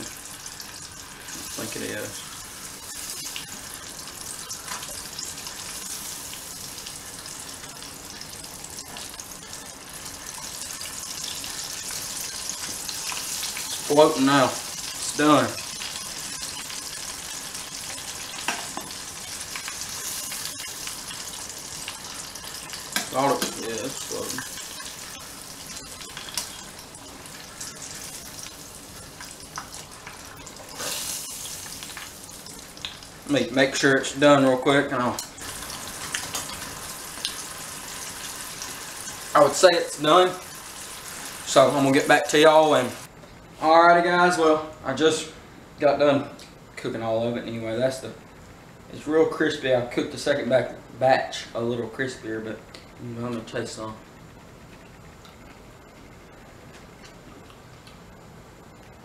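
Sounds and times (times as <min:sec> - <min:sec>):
fish deep-frying in oil: 0:00.0 - 0:34.1, 0:35.2 - 0:43.1.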